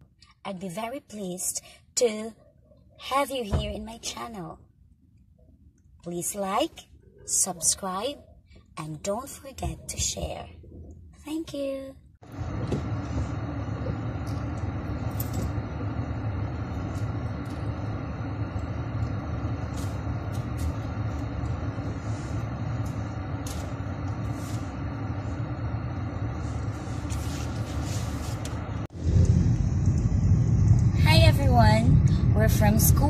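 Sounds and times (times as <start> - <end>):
car cabin road noise: 12.3 - 33.0.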